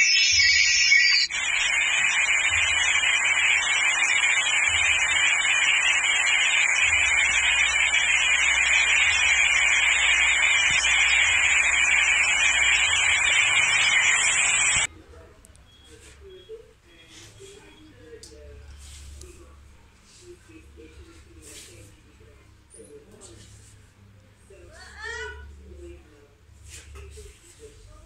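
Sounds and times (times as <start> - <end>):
high-pitched whine: 0.0 - 14.9
static hiss: 0.0 - 14.9.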